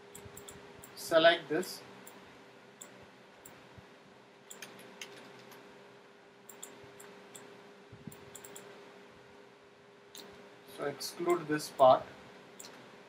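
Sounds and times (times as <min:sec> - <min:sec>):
faint steady hum: 0:00.0 - 0:13.0
computer mouse clicking: 0:00.1 - 0:01.0, 0:04.5 - 0:05.6, 0:06.5 - 0:07.5, 0:08.1 - 0:08.7, 0:12.6 - 0:12.8.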